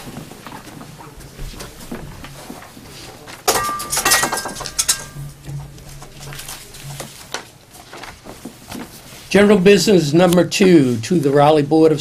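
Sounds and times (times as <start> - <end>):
papers rustling: 0.0 - 11.6.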